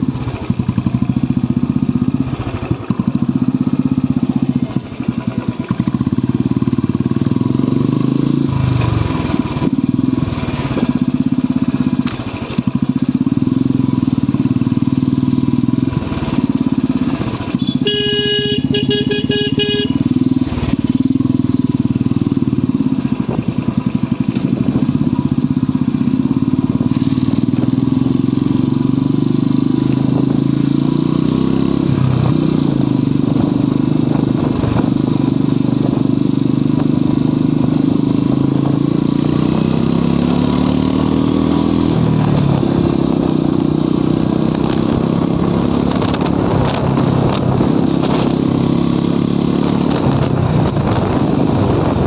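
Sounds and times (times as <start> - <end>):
motorcycle engine running: 0.0 - 52.0
horn short beeps: 17.5 - 20.2.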